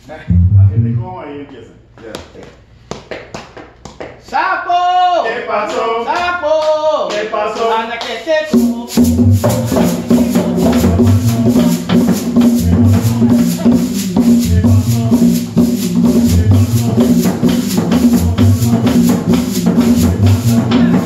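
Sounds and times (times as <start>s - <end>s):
band playing upbeat cumbia: 0.3s - 1.0s, 8.5s - 21.0s
metal shaker rhythm: 8.5s - 21.0s.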